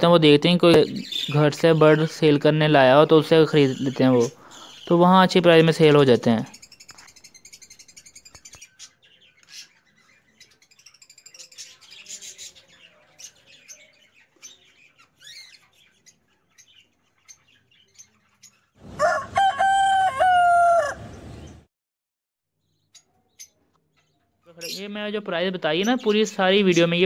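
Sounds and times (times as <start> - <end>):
rooster crowing: 18.8 - 21.3.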